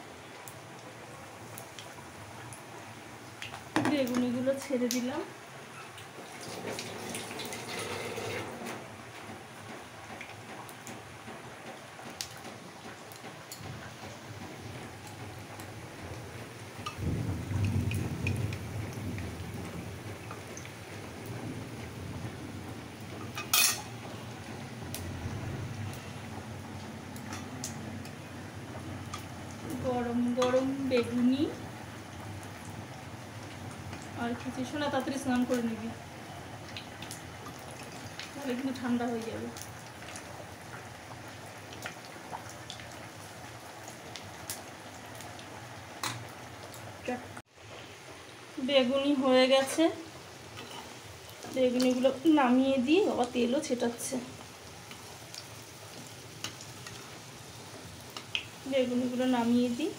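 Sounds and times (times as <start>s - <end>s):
slices sizzling in hot oil: 0.0s - 9.0s, 22.6s - 59.9s
metal spatula clattering on pan: 23.2s - 23.9s
oil crackling pops: 58.1s - 58.6s.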